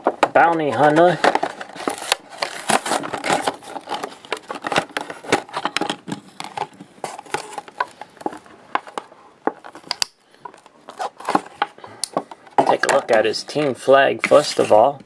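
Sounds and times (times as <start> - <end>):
plastic packaging being pulled apart: 1.0 - 8.4, 9.7 - 11.7.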